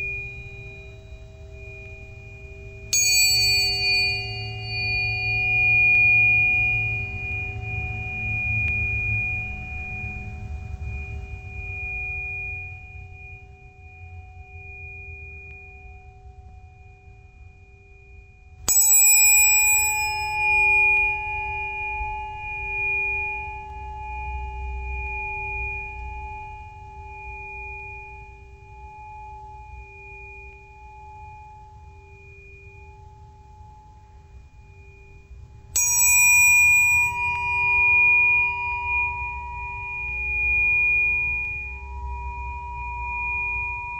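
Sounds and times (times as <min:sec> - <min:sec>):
bells ringing: 0:03.0 - 0:05.6, 0:18.7 - 0:20.8, 0:35.8 - 0:37.9.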